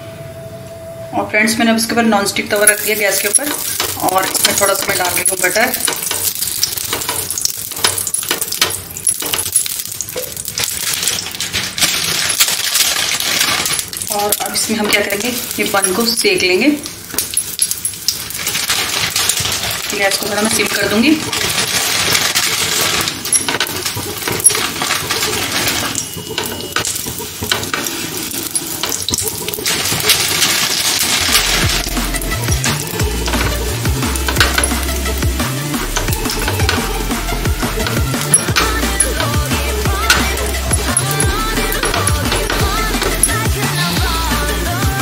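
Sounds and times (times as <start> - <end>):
butter sizzling in pan: 2.5 - 45.0
utensil scraping pan: 18.3 - 44.0.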